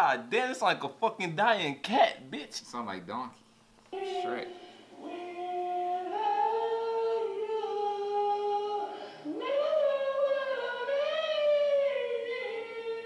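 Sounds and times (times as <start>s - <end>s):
woman singing long notes: 3.9s - 13.0s.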